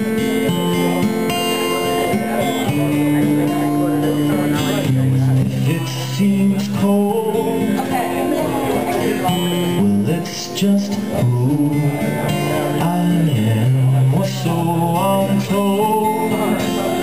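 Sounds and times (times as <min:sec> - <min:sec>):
acoustic guitar strumming: 0:00.0 - 0:17.0
held melody notes: 0:00.0 - 0:17.0.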